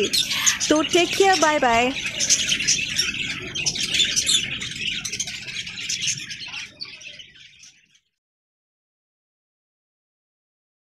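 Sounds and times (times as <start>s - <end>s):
lovebirds chirping: 0.0s - 8.2s.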